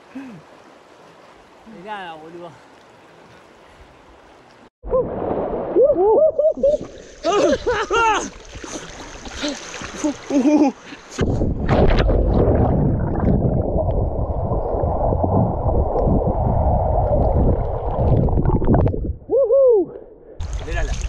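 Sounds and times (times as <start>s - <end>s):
person crying out: 5.8s - 8.4s
underwater rumbling and gurgling: 11.2s - 19.3s.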